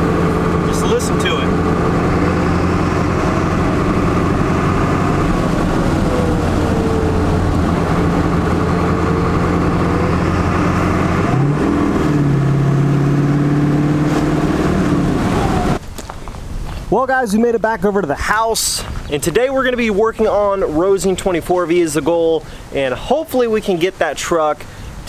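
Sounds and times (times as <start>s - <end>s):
diesel engine cruising: 0.0s - 16.8s.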